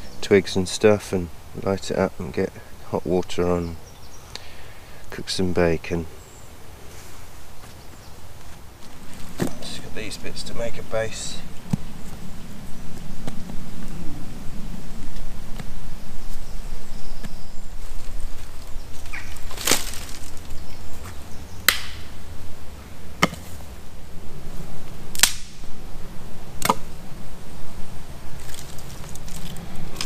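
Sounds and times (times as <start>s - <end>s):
steady low rumble: 6.1s - 30.0s
twigs snapping: 18.4s - 20.6s, 21.6s - 22.1s, 25.1s - 25.6s, 26.6s - 26.9s, 28.4s - 30.0s.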